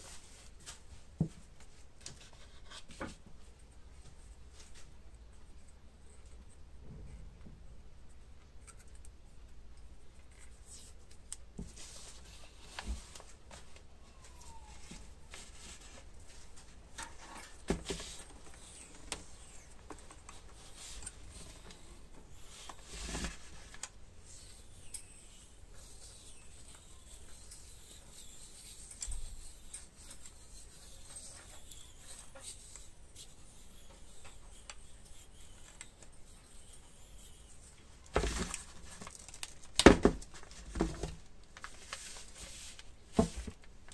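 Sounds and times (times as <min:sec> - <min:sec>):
rubbing and scraping by hand: 0:11.6 - 0:39.3, 0:41.7 - 0:43.6.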